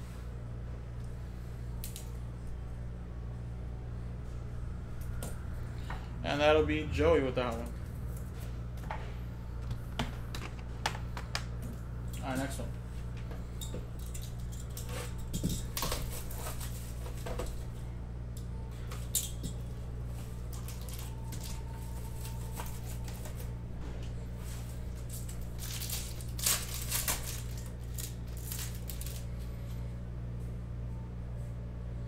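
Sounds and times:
low hum: 0.0s - 32.0s
cardboard card pack rustling: 25.2s - 29.3s.

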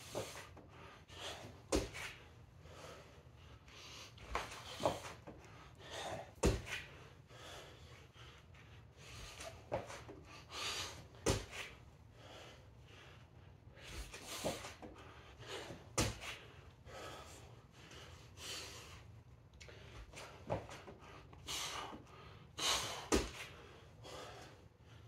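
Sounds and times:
person breathing hard: 0.0s - 25.0s
thumps on rubber floor mat: 6.4s - 6.8s.

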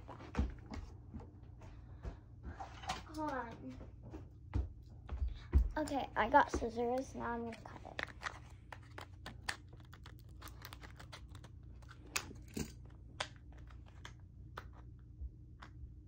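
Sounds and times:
plastic crinkling: 7.0s - 14.2s.

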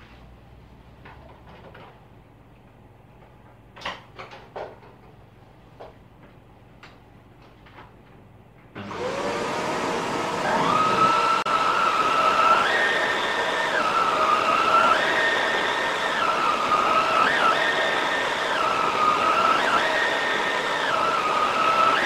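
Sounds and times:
vacuum cleaner motor whine: 8.8s - 22.0s.

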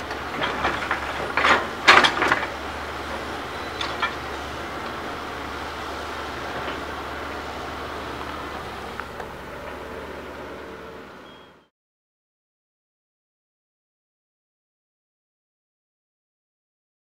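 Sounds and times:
bucket clattering rock and debris: 0.0s - 5.2s
excavator engine running: 0.0s - 11.7s.

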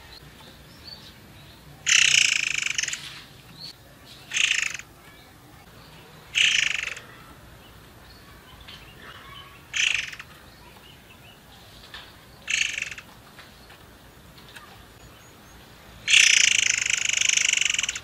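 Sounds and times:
songbird calls: 0.0s - 18.0s.

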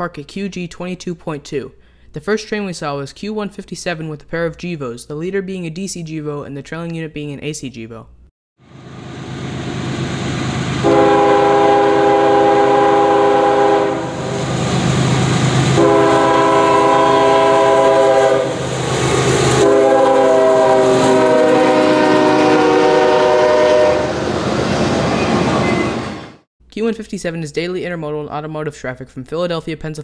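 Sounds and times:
locomotive air horn blasts: 10.8s - 14.4s, 15.7s - 18.6s, 19.6s - 24.2s
rail cars rolling on rails: 18.5s - 26.4s.

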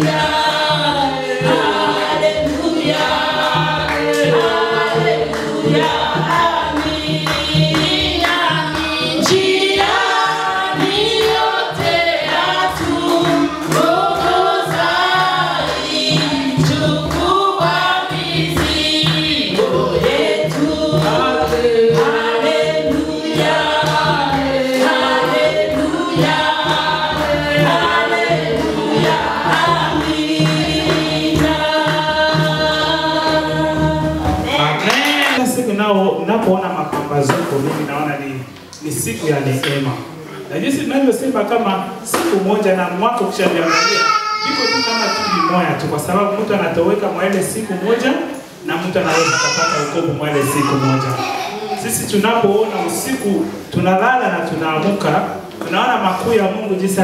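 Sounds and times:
steady low beat: 0.0s - 34.8s
choir singing gospel: 0.0s - 57.0s.

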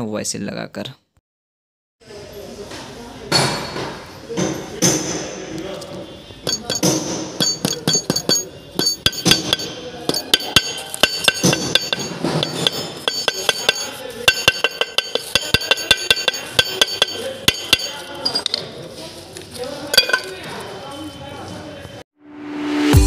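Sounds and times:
hammer tapping on metal: 6.4s - 18.1s.

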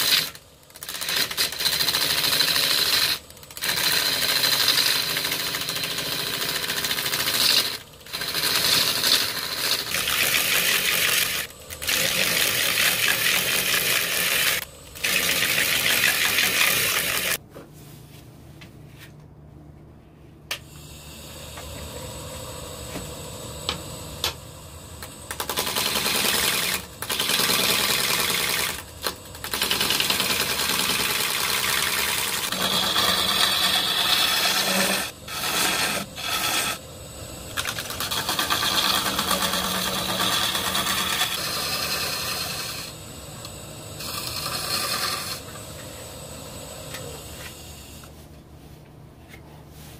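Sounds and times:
lathe running hum: 0.0s - 17.4s, 20.7s - 48.1s
lathe tool cutting wood: 0.0s - 17.4s, 25.0s - 43.0s, 43.8s - 45.7s.

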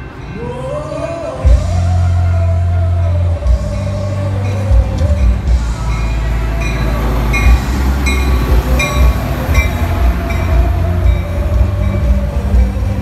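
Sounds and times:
diesel train passing: 0.0s - 13.0s.

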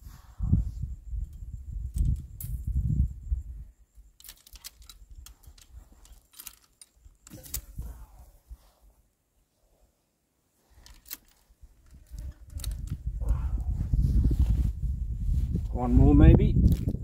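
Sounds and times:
wire strainer clicks and rattles: 4.2s - 7.7s.

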